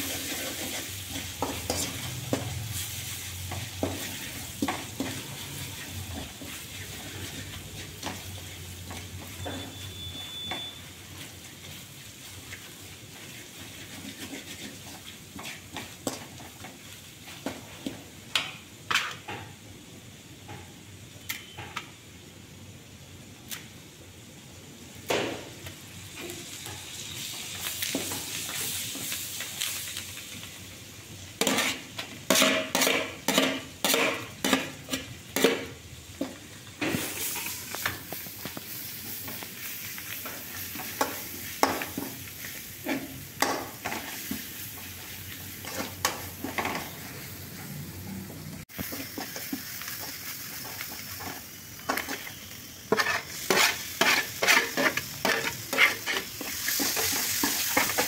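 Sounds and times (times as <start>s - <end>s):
spices sizzling in hot oil: 0.0s - 22.2s, 22.8s - 58.0s
spatula scraping metal pan: 13.5s - 15.6s, 31.4s - 35.6s, 52.9s - 58.0s.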